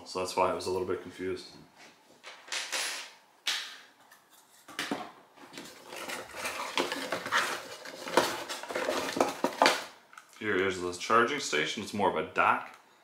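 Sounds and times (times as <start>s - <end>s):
cardboard scraping and rustling: 5.4s - 9.9s.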